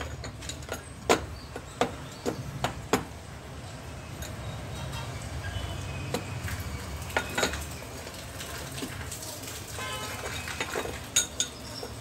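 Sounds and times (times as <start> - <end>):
steel bars clinking and knocking: 0.0 - 3.2, 3.8 - 5.2, 7.1 - 7.8, 10.3 - 12.0.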